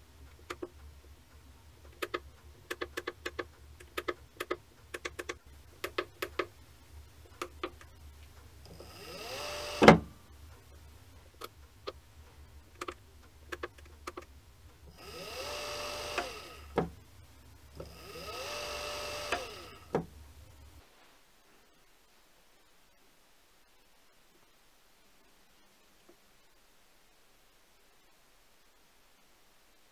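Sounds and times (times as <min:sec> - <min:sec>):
motor braking clunk: 0:08.7 - 0:10.1
servo motor whine: 0:08.7 - 0:10.1, 0:15.0 - 0:16.8, 0:17.8 - 0:19.9.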